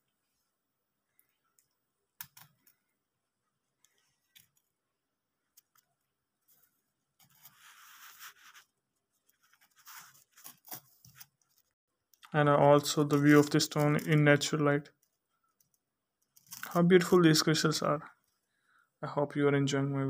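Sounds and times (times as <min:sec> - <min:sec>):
rustling scrape: 0:06.4 - 0:11.8.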